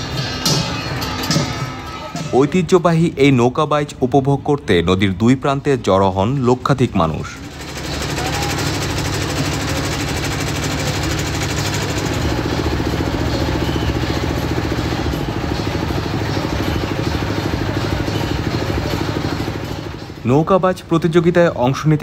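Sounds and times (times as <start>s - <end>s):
motorboat engine running: 7.4s - 20.3s.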